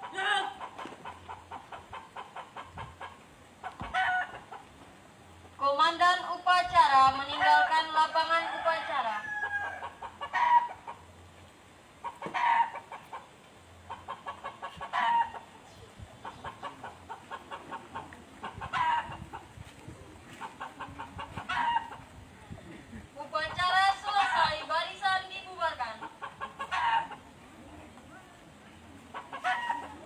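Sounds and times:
chicken squawking: 0:00.0 - 0:04.6, 0:13.9 - 0:15.5, 0:16.2 - 0:19.5, 0:20.4 - 0:22.1, 0:26.0 - 0:27.3, 0:29.1 - 0:30.0
chickens clucking: 0:00.0 - 0:05.6, 0:09.7 - 0:30.0.

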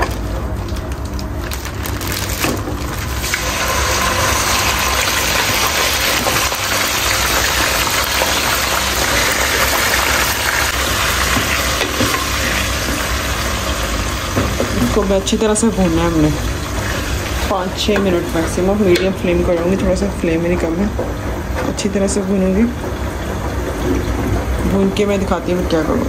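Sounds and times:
meat sizzling in hot oil: 0:01.6 - 0:19.0.

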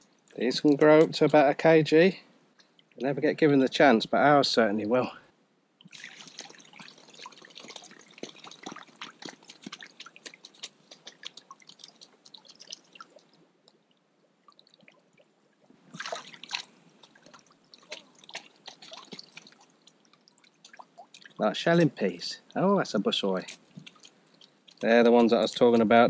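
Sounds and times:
water dripping: 0:00.0 - 0:01.6, 0:02.5 - 0:03.2, 0:05.8 - 0:26.0
wet clicks and rustles of net: 0:05.8 - 0:13.8, 0:15.9 - 0:21.4, 0:23.4 - 0:26.0.

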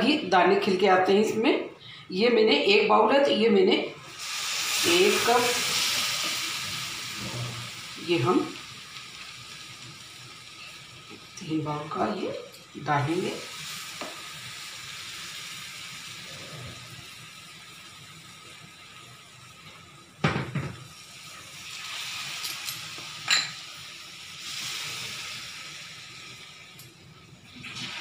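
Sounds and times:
water poured into hot pan: 0:04.0 - 0:11.5, 0:12.6 - 0:20.2, 0:20.8 - 0:28.0.

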